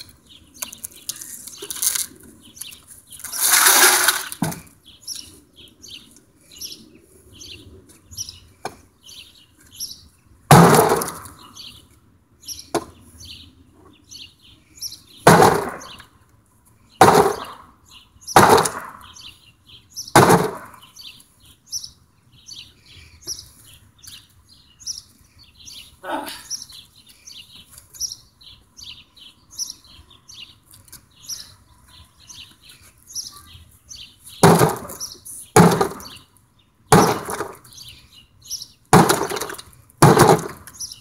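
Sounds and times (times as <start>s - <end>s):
birds chirping: 0.0s - 41.0s
heavy blows splintering a door: 35.6s - 36.1s, 36.9s - 37.6s, 39.0s - 40.7s.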